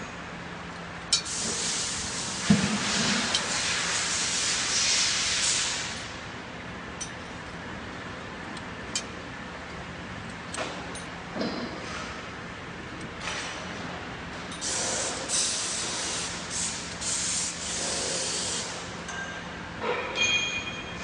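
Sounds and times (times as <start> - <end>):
compressed air hissing: 1.3 - 6.0, 14.6 - 18.8.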